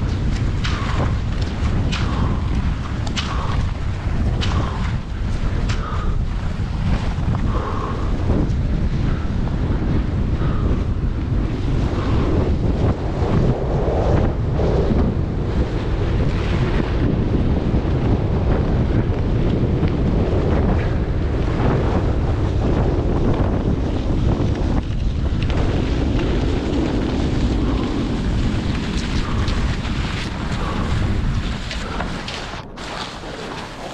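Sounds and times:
wind buffeting microphone: 0.0 - 33.9
skis and poles scraping snow: 25.6 - 33.9.

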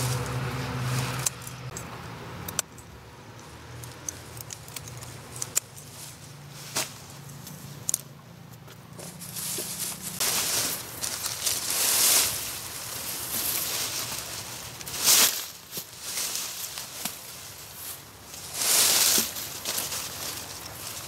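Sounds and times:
leaves rustling: 0.0 - 2.0, 3.4 - 21.0
garden scissors snipping stems: 0.0 - 6.2.

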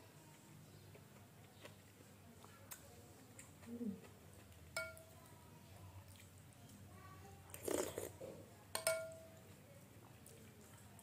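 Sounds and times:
spoon clinking glass bowl: 4.8 - 5.1, 8.7 - 9.3
eating sound: 7.5 - 8.4.

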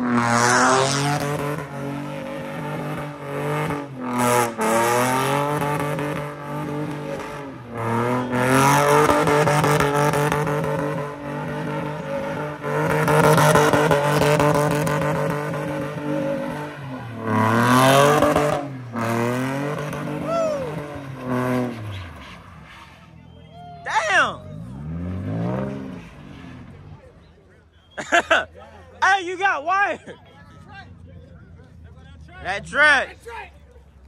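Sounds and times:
car engine revving hard: 0.0 - 22.2, 24.6 - 26.8.

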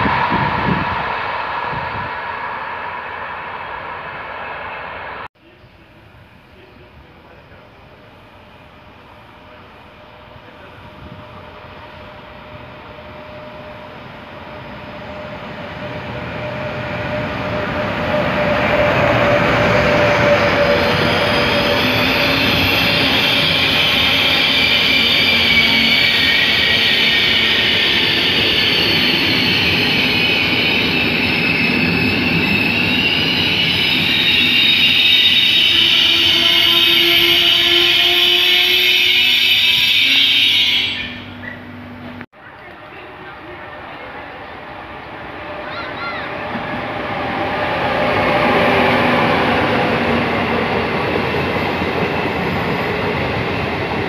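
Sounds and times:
train rumbling past: 0.0 - 54.0
wheels squealing on rails: 7.5 - 42.2.

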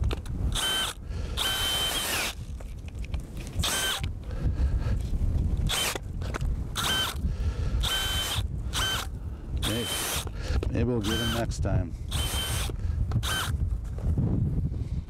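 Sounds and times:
drill motor whining: 0.5 - 2.4, 3.6 - 4.1, 5.7 - 7.2, 7.8 - 13.6.

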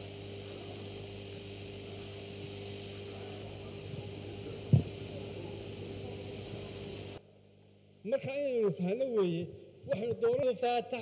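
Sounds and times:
high hiss: 0.0 - 7.2
electrical mains hum: 0.0 - 11.0.

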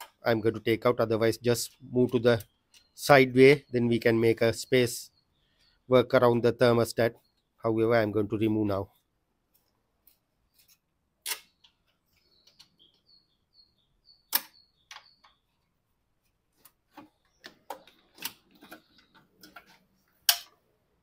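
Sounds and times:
plastic clicks and knocks: 16.6 - 20.6.

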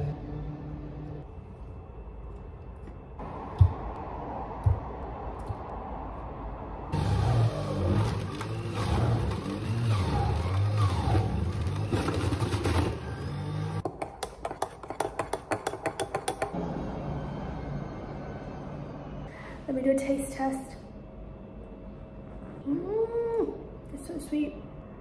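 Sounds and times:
juicer motor running: 7.0 - 13.8.

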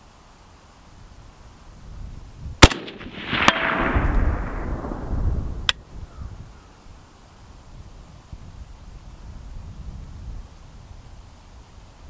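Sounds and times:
light sharp cracks: 2.6 - 5.0
rifle shot: 2.6 - 5.7
rolling echo: 2.6 - 6.2.

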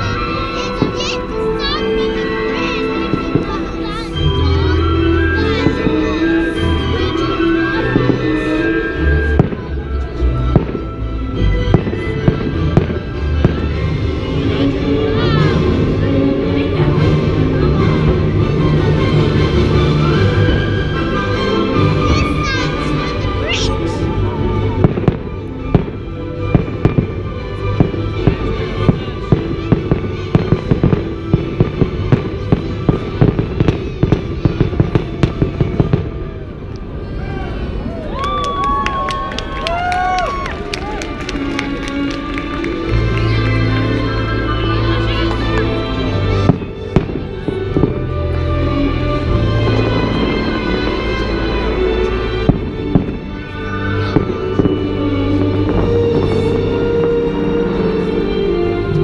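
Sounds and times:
music soundtrack playing: 0.0 - 36.6, 40.6 - 59.0
fireworks bursting with sharp bangs: 9.4 - 9.8, 10.5 - 11.0, 11.7 - 13.9, 24.7 - 36.4, 45.9 - 48.5, 52.1 - 57.6.

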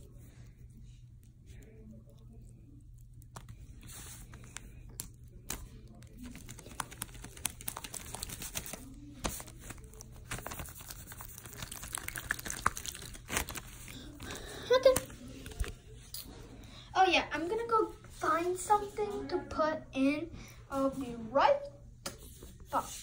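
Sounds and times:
hands squishing slime: 0.0 - 15.8.

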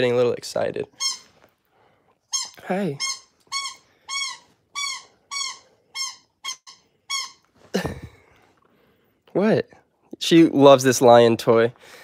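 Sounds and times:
squeaky dog toy squeaks: 0.9 - 1.4, 2.3 - 7.5.

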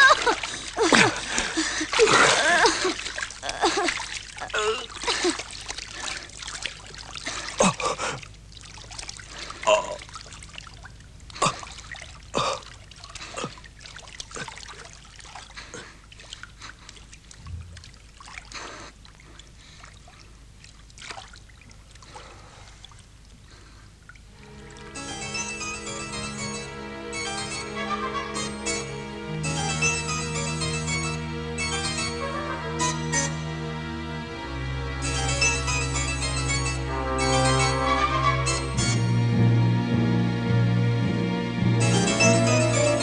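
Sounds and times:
water splashing and dripping: 0.0 - 25.0.

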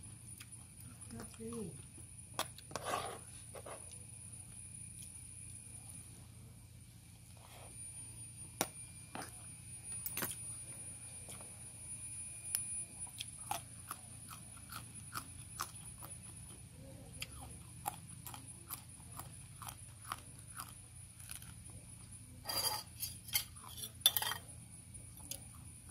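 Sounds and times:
crunchy chewing of raw beans: 2.3 - 4.2, 12.5 - 25.9.

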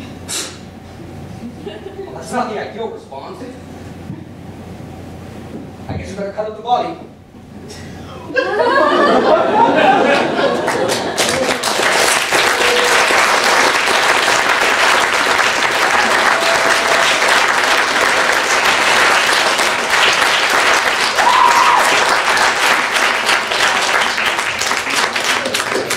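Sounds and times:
audience applauding: 9.2 - 25.9.

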